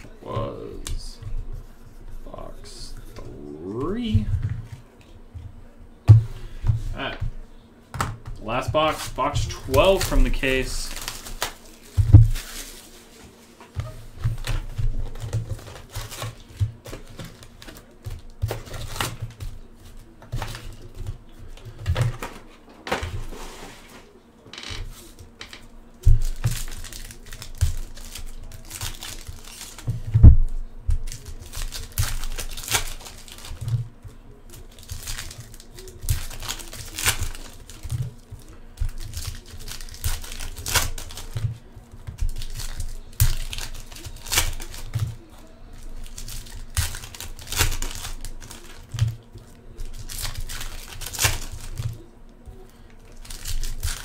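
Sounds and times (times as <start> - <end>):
foil packs tearing and crinkling: 8.6 - 13.4, 14.3 - 19.6, 26.2 - 30.0, 31.0 - 33.9, 34.5 - 41.4, 42.2 - 52.0, 52.6 - 54.0.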